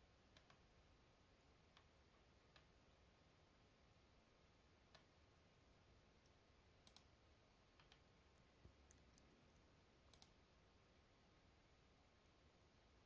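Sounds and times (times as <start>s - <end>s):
computer mouse clicks: 0.3s - 0.6s, 1.7s - 2.8s, 4.9s - 5.2s, 6.2s - 9.4s, 10.0s - 10.5s.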